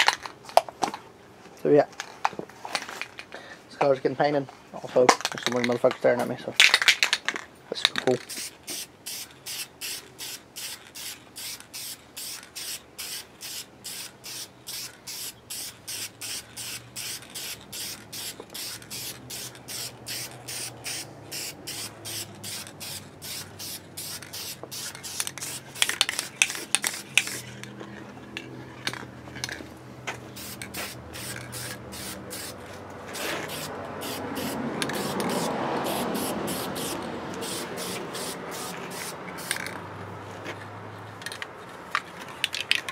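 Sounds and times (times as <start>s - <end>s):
spray can hissing bursts: 8.3s - 27.5s, 30.3s - 39.8s.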